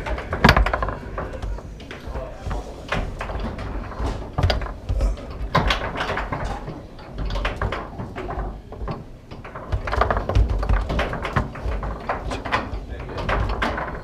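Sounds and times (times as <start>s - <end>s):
foosball ball clacking: 0.0s - 14.0s
rods banging in bearings: 2.9s - 14.0s.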